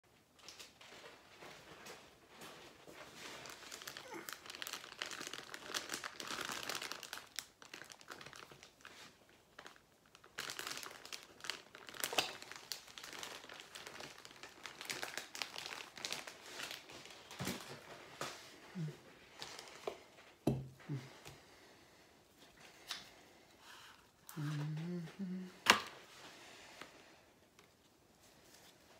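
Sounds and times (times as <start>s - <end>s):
foil crackling rustle: 2.6s - 18.6s.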